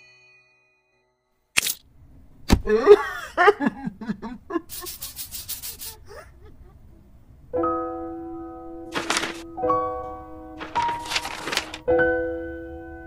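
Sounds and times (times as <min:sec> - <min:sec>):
quick scratching strokes: 0:04.7 - 0:06.0.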